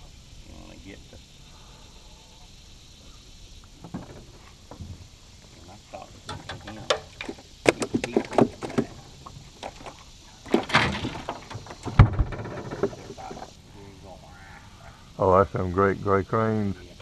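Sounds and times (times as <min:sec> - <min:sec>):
scraping rustle: 0:03.8 - 0:13.6
knocks and clatter in boat: 0:06.3 - 0:13.5
plastic cooler opening: 0:09.6 - 0:13.4
heavy thump: 0:10.5 - 0:13.5.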